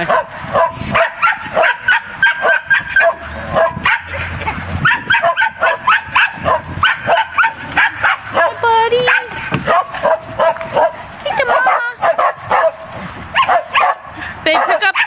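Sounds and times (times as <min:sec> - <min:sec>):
dogs barking high-pitched: 0:00.0 - 0:15.0.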